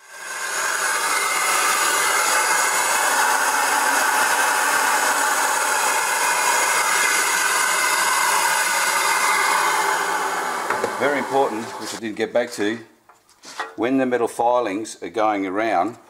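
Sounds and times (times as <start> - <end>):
dust extraction vacuum rushing: 0.0 - 12.1.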